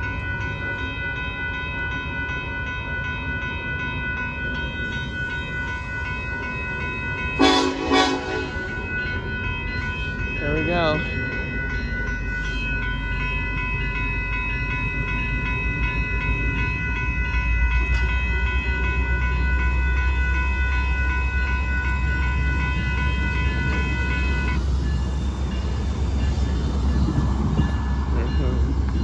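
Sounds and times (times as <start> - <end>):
low train rumble: 0.0 - 29.0
railroad crossing bell ringing: 0.0 - 29.0.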